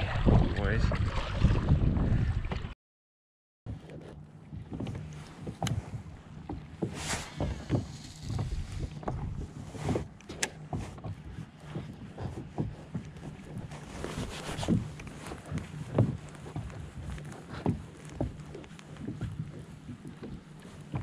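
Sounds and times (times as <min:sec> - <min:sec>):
water slapping against kayak hull: 0:00.0 - 0:02.7, 0:03.8 - 0:21.0
wind gusts on microphone: 0:00.0 - 0:02.7.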